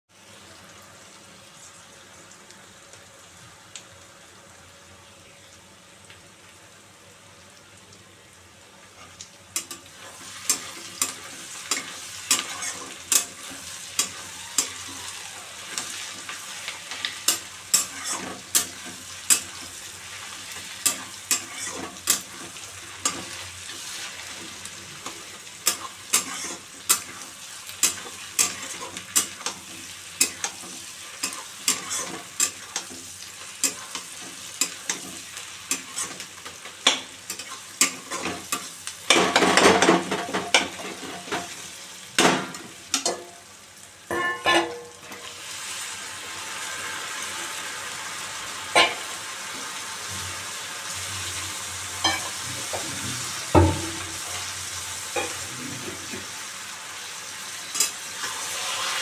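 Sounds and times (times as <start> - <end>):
onions sizzling in oil: 0.1 - 59.0
spatula scraping pan: 9.6 - 15.0, 15.7 - 33.0.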